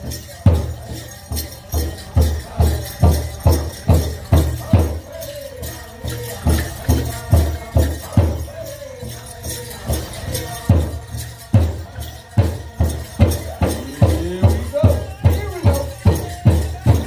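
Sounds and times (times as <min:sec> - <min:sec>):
group singing: 0:00.0 - 0:17.0
jingling rattle: 0:00.0 - 0:17.0
big drum beat: 0:10.7 - 0:17.0.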